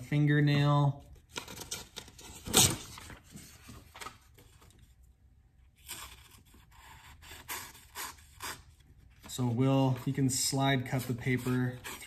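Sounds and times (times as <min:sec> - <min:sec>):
paper rustling: 0:01.2 - 0:05.0.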